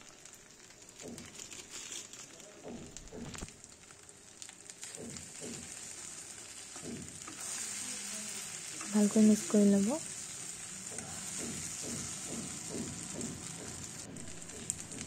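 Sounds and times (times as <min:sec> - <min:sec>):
plastic packet crinkling: 0:00.0 - 0:07.8
faint sizzle: 0:00.0 - 0:15.0.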